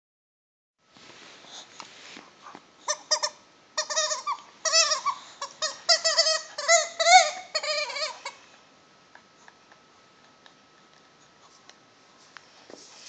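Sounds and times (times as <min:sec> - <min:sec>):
squeaky dog toy squeaking: 0:02.9 - 0:08.4.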